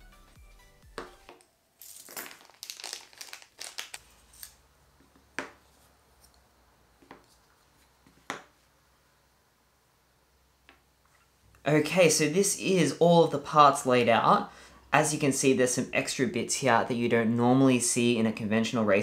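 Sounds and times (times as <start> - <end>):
plastic bags crinkling: 1.8 - 4.6.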